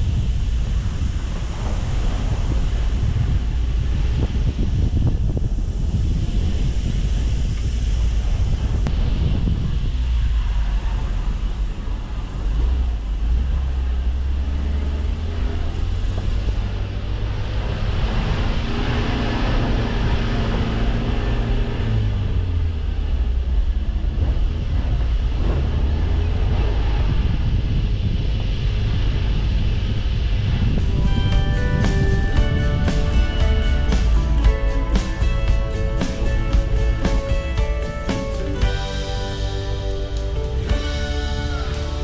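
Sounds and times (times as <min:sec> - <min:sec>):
tyres rumbling on dirt: 0:00.0 - 0:42.0
van engine drone: 0:00.0 - 0:42.0.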